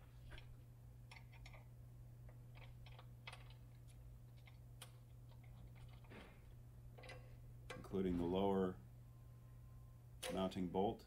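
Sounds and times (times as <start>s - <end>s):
steady low hum: 0.0s - 11.0s
wrench and bolt clicks: 7.0s - 8.0s.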